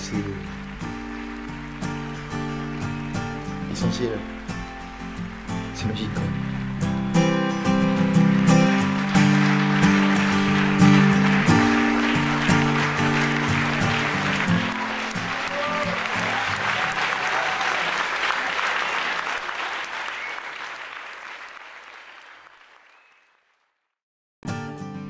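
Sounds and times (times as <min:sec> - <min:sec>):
guitar music: 0:00.0 - 0:16.8, 0:24.4 - 0:25.0
audience applause: 0:00.0 - 0:23.7.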